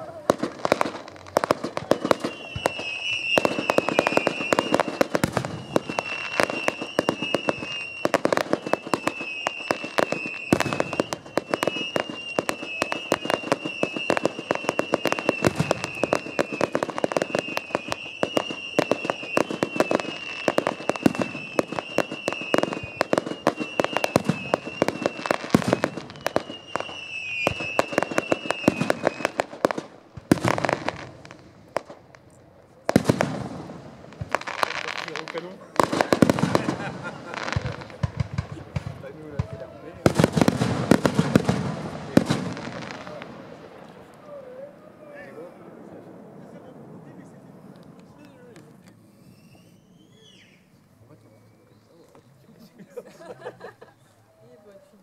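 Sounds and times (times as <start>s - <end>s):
fireworks bangs and crackles: 0.0s - 50.6s
high wavering whistle: 1.9s - 29.3s, 49.1s - 52.0s.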